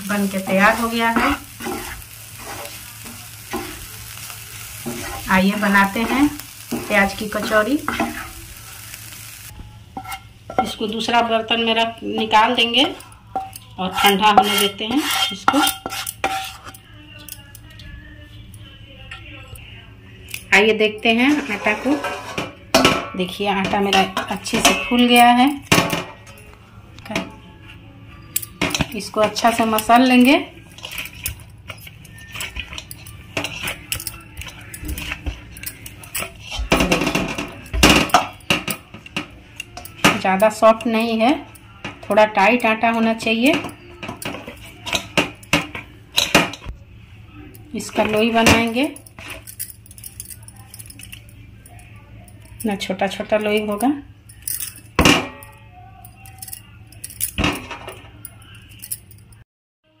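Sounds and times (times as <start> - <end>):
bangles clinking: 28.2 - 36.8, 48.9 - 52.7, 53.6 - 57.6, 58.2 - 59.4.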